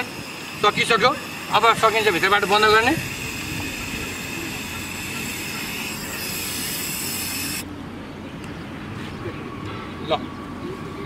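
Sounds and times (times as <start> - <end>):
gas hissing from valve: 0.0 - 7.6.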